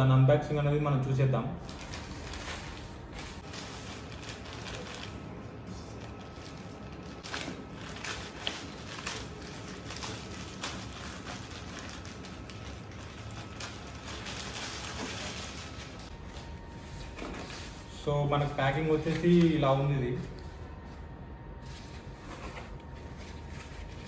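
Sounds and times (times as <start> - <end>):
plastic mailer bag crinkling: 1.7 - 5.4, 6.0 - 16.2.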